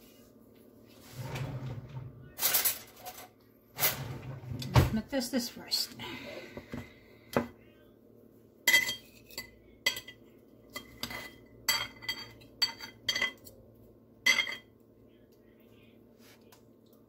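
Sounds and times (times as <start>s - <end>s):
cutlery clinking on ceramic plate: 8.7s - 13.5s, 14.3s - 14.7s.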